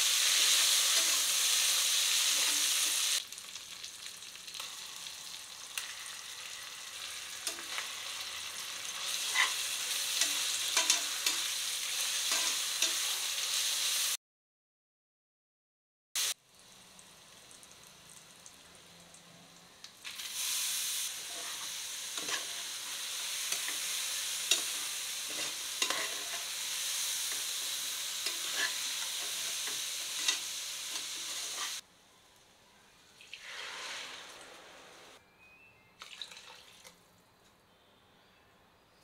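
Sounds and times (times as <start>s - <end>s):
rice sizzling in hot fat: 0.0s - 14.2s, 16.2s - 18.7s, 19.9s - 31.8s
spoon clicking and scraping pot: 24.5s - 26.4s.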